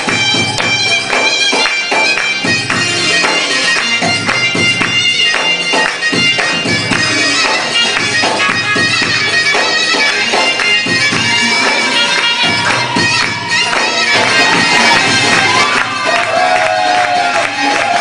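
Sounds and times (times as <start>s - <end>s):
instrumental music with reedy tones: 0.0s - 18.0s.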